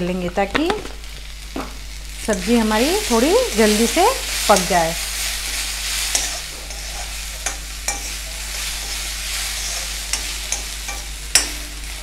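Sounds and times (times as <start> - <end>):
vegetables sizzling in oil: 0.0 - 12.0
spatula scraping pan: 2.3 - 11.8.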